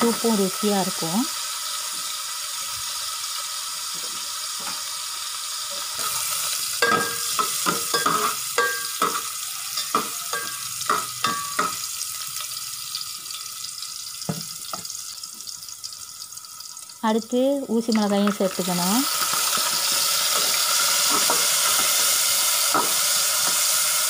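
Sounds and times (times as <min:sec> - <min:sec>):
garlic sizzling in hot oil: 0:00.0 - 0:24.0
metal spatula scraping pot: 0:06.8 - 0:11.8.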